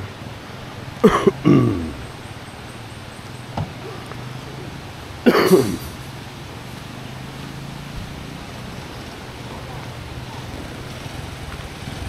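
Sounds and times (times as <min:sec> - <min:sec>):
person coughing or calling: 0:01.0 - 0:02.1, 0:05.2 - 0:06.0.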